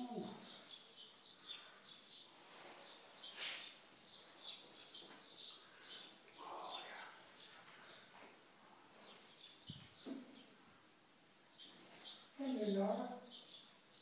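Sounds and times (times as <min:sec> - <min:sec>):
small birds chirping: 0:00.0 - 0:14.0
brief scuffling noise: 0:02.6 - 0:03.7.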